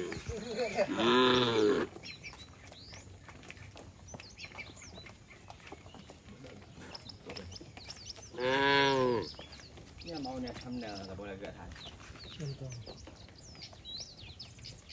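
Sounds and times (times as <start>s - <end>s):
hooves clicking on concrete: 0.0s - 14.9s
cow mooing: 0.9s - 1.9s, 8.4s - 9.3s.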